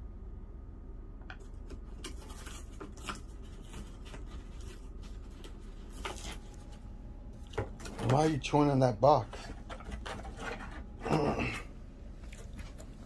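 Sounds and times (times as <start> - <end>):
parrot tearing cardboard: 1.5 - 6.8, 9.2 - 11.4.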